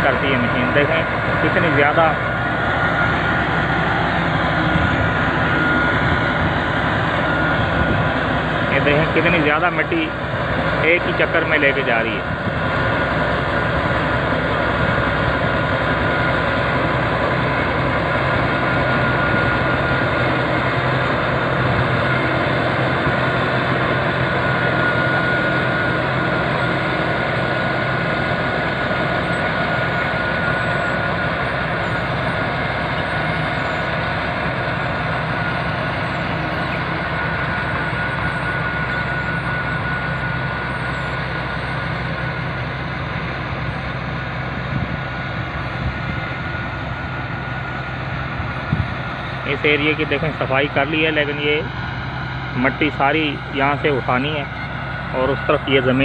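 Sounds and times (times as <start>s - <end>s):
bulldozer diesel engine under load: 0.0s - 56.0s
high whine: 0.0s - 56.0s.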